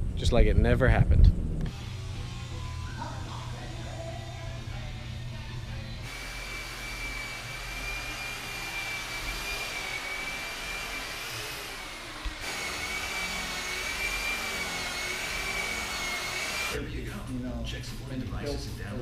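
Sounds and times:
small electric motor whine: 1.7s - 16.8s.

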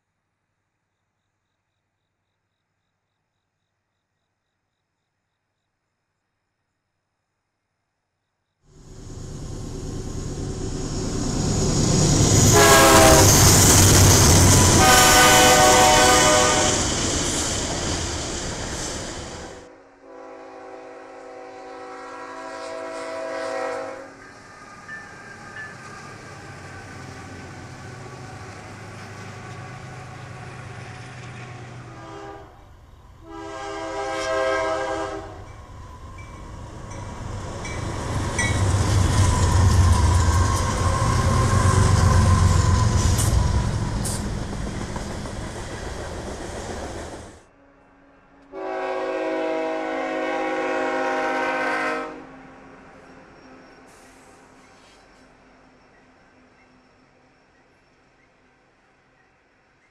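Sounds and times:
freight train rumble: 8.7s - 47.5s, 48.4s - 59.4s
locomotive horn blasts: 12.4s - 13.6s, 14.5s - 16.9s, 19.7s - 24.2s, 31.8s - 32.6s, 33.2s - 35.6s, 48.4s - 52.5s.

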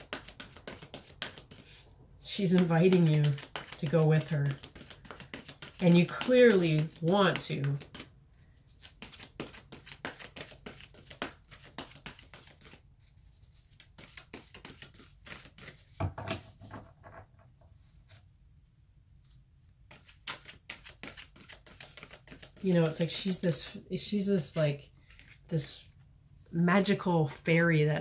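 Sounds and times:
cards being shuffled: 0.0s - 1.8s, 2.4s - 16.6s, 19.9s - 23.4s, 24.4s - 25.8s
knock: 16.0s - 17.2s.

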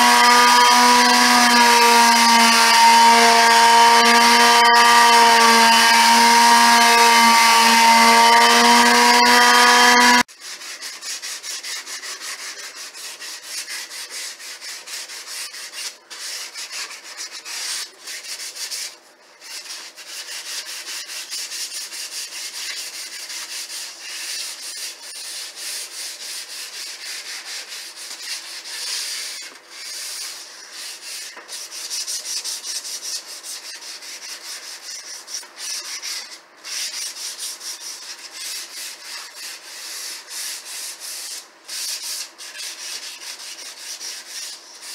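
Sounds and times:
electric palm sander humming: 0.0s - 10.3s
hand sanding strokes: 0.0s - 44.9s.

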